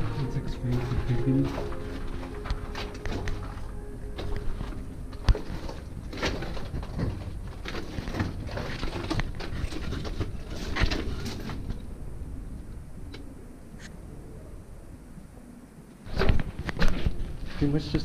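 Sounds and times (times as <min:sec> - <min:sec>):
footsteps crunching on loose rock: 0:00.0 - 0:11.7
handling noise: 0:00.0 - 0:12.0.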